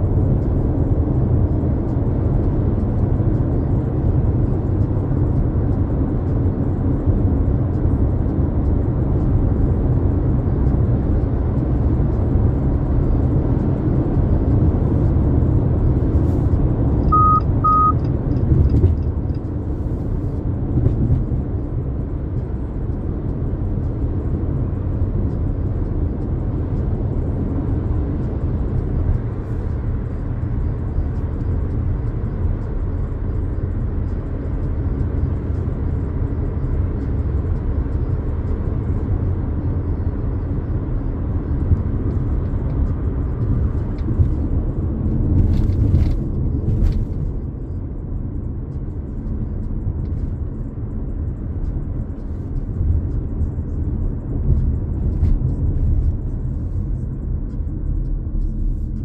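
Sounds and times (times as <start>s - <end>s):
car road and engine rumble: 0.0s - 59.0s
short high beeps: 17.0s - 18.0s.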